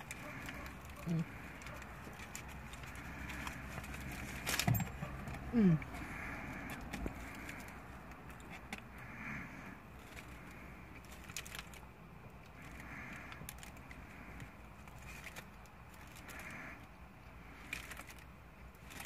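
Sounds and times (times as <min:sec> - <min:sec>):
paper wrapper crinkling: 0:00.0 - 0:05.2, 0:10.0 - 0:11.9, 0:14.8 - 0:16.6
quiet chewing: 0:00.0 - 0:09.0.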